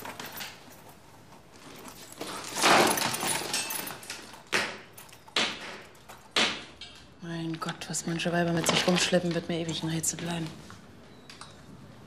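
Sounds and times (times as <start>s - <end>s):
rummaging through a handbag: 0.0s - 6.3s.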